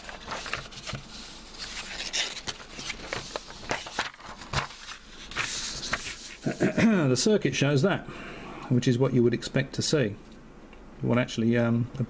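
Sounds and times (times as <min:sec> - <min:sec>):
paper rustling: 0:00.0 - 0:06.8.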